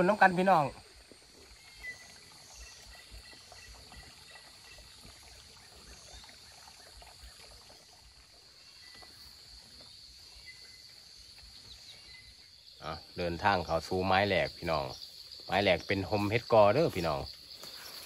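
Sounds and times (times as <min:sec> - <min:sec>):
water trickling over rock: 0:00.0 - 0:18.0
insects hissing: 0:07.3 - 0:18.0.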